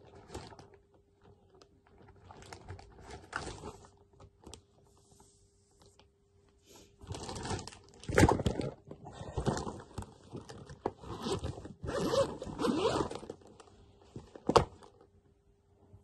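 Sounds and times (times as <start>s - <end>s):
plastic pouch crinkling: 0.0s - 4.6s, 7.0s - 13.7s
zipper rasping: 11.1s - 13.3s.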